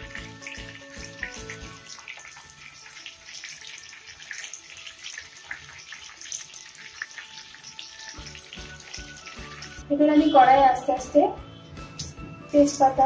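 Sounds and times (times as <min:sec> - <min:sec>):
potatoes sizzling in oil: 0:00.0 - 0:10.6
background music: 0:00.0 - 0:13.0.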